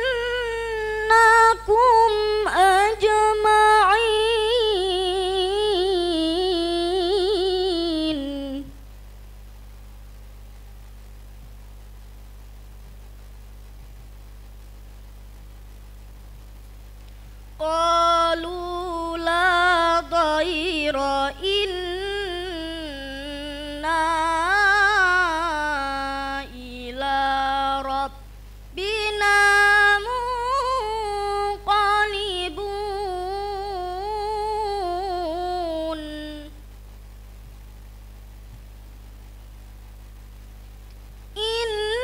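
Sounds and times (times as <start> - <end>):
girl reciting melodically: 0.0 - 8.8, 17.6 - 28.2, 28.8 - 36.6
low electrical hum: 0.0 - 42.0.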